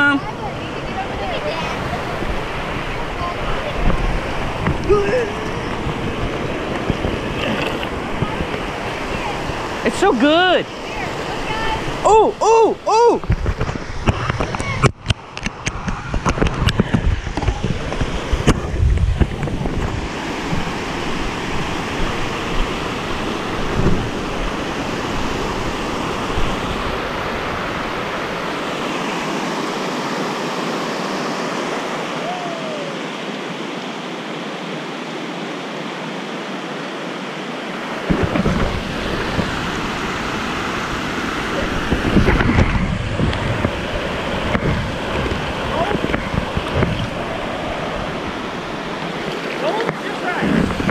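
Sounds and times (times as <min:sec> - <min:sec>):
creek rushing over rocks: 0:00.0 - 0:50.9
low rumbling bumps on microphone: 0:38.0 - 0:39.9.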